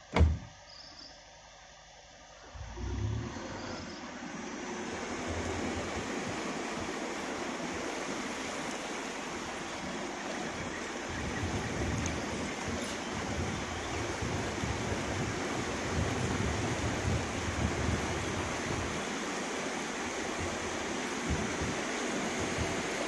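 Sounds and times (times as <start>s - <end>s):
low rumble: 1.5s - 6.9s
floodwater rushing and sloshing: 2.3s - 23.0s.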